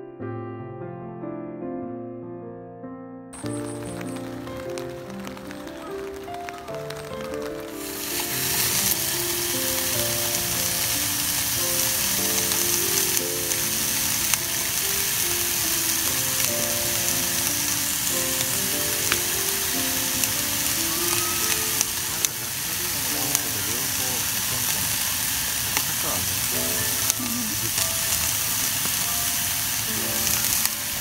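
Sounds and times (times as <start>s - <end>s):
background music: 3.4s - 24.4s
vegetables sizzling in a frying pan: 3.4s - 31.0s.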